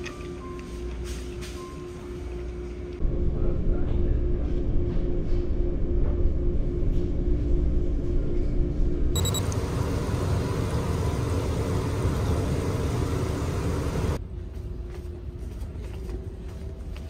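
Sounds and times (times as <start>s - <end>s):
faint steady hum: 9.2s - 14.2s
ferry engine rumble: 9.2s - 14.7s.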